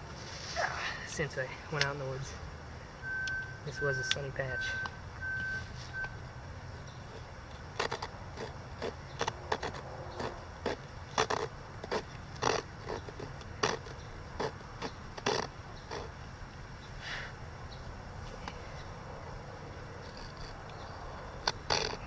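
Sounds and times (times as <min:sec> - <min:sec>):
blade scraping wood: 0:07.0 - 0:16.2, 0:20.0 - 0:22.0.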